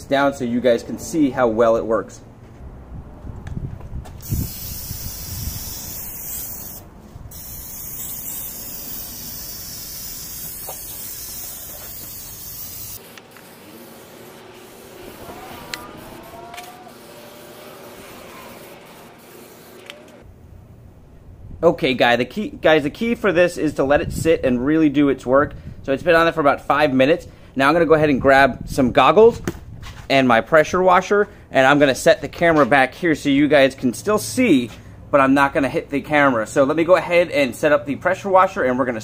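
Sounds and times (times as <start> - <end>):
aerosol can spraying: 4.2 - 20.2.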